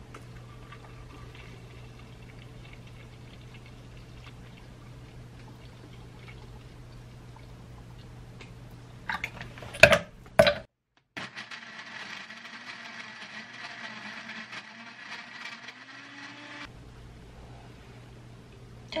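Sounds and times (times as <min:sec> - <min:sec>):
blender running: 0:11.2 - 0:16.7.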